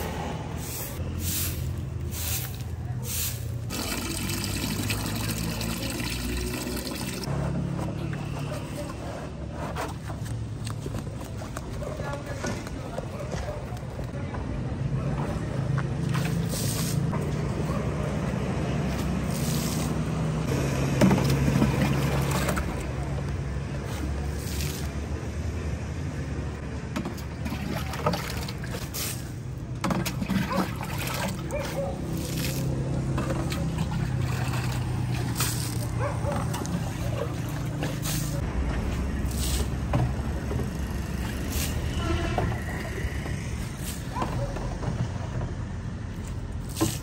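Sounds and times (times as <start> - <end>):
water splashing on pavement: 0.6 - 7.3, 29.9 - 39.9, 46.6 - 47.0.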